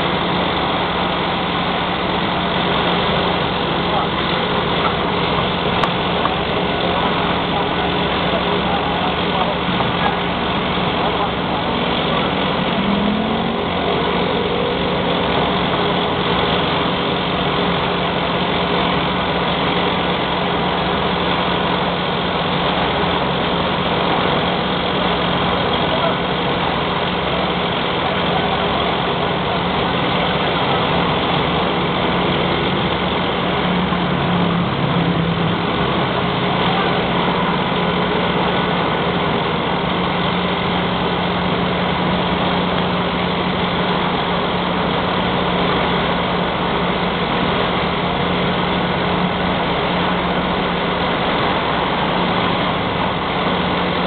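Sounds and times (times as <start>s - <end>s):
crane diesel engine running: 0.0s - 54.0s.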